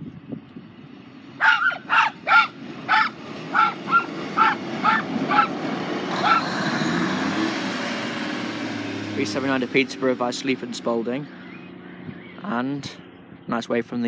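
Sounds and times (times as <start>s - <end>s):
dog barking: 1.4s - 5.6s, 6.2s - 6.5s.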